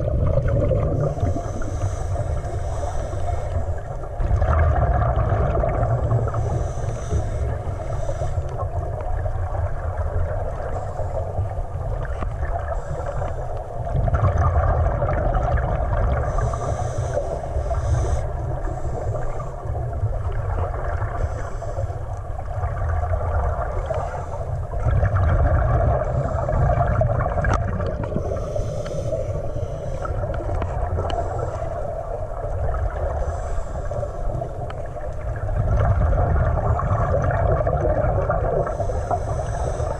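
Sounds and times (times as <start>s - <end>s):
exhaled bubbles: 0.0s - 21.4s, 22.3s - 39.9s
low muffled underwater rumble: 0.0s - 39.9s
diver regulator breaths: 0.7s - 4.2s, 5.6s - 9.0s, 10.5s - 11.7s, 12.4s - 13.9s, 16.0s - 22.5s, 23.7s - 24.8s, 25.8s - 35.4s, 38.4s - 39.9s.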